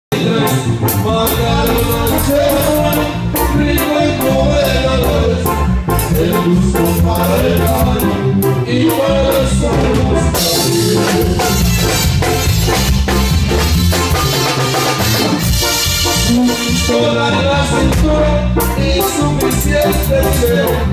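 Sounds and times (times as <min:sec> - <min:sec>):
person singing: 0:00.1 - 0:11.9, 0:16.2 - 0:20.9
drums: 0:00.1 - 0:20.9
high percussion: 0:00.1 - 0:20.9.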